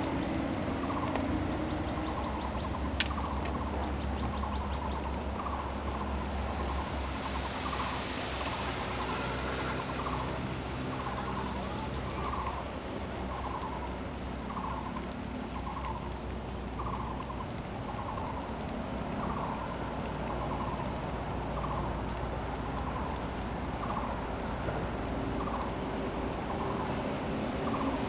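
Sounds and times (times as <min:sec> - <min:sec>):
thin high whine: 0:06.5 - 0:13.9.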